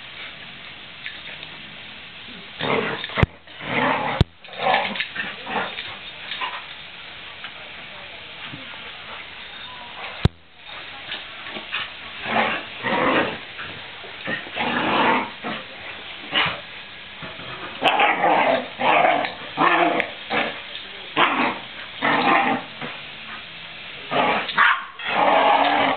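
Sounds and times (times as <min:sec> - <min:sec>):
dogs play-growling and yipping: 0:02.4 - 0:06.8, 0:11.4 - 0:23.5, 0:24.1 - 0:25.9.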